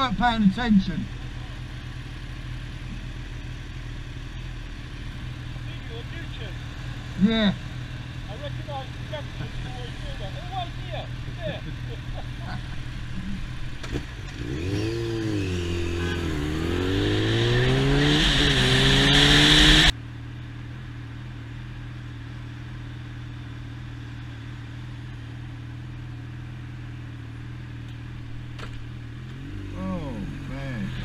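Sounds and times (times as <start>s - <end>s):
motorcycle engine idling: 0.0s - 16.6s, 20.0s - 31.0s
motorcycle engine revving: 0.9s - 20.0s, 26.6s - 31.0s.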